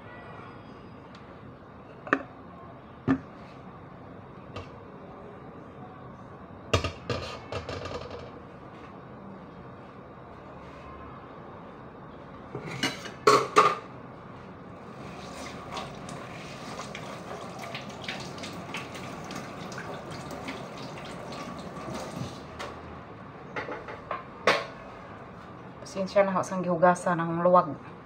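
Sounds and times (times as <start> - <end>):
tap water running: 14.9 - 22.8.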